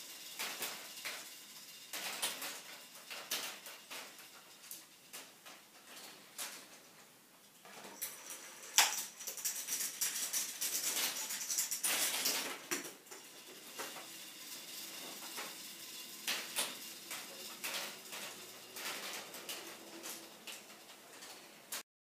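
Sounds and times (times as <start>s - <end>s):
reels clicking to a stop: 0.0s - 6.8s, 8.0s - 21.8s
plastic reels clattering: 0.0s - 21.8s.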